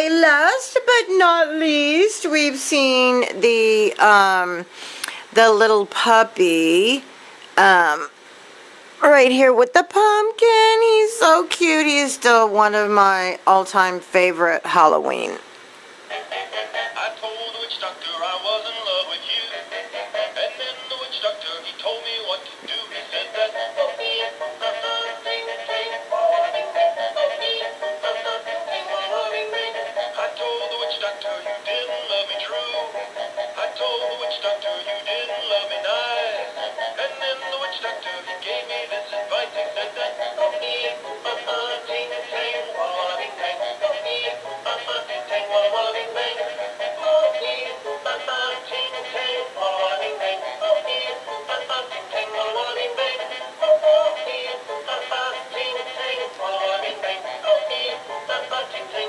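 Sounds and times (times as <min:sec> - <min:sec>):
toy singing through small speaker: 0:16.1 - 0:59.0.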